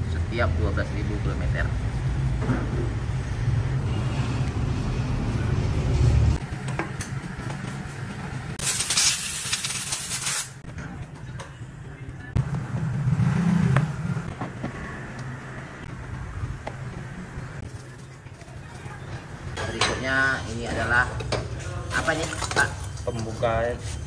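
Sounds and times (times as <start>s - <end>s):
compressed air gun hissing: 8.6s - 10.6s.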